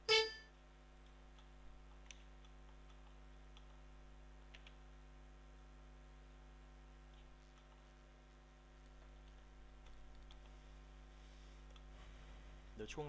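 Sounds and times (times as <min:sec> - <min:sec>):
short bright ding: 0:00.0 - 0:00.4
low steady hum: 0:00.0 - 0:13.0
computer mouse clicks: 0:01.0 - 0:03.8, 0:04.5 - 0:04.8, 0:08.8 - 0:10.6.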